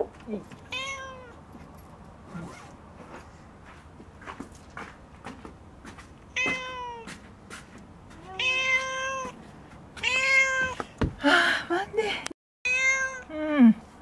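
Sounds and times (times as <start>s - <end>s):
cat meowing: 0.7s - 1.4s, 6.3s - 7.1s, 8.2s - 9.4s, 10.0s - 10.8s, 12.6s - 13.3s.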